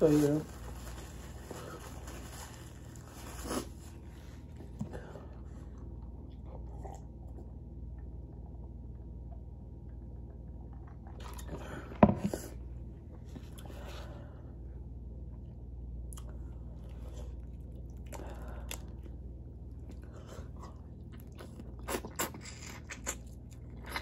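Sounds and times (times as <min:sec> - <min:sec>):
low steady hum: 0:00.0 - 0:24.0
person chewing: 0:16.1 - 0:24.0.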